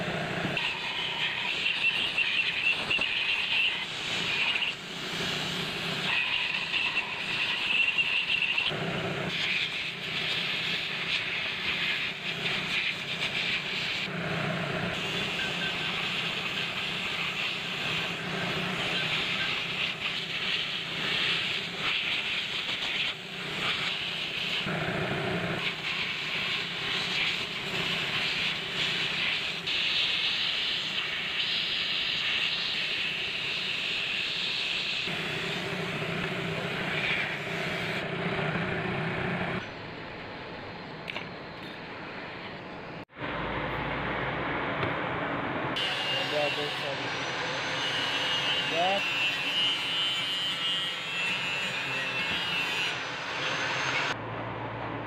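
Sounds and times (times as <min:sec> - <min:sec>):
compressed air hissing: 0:15.0 - 0:24.7, 0:25.5 - 0:38.0.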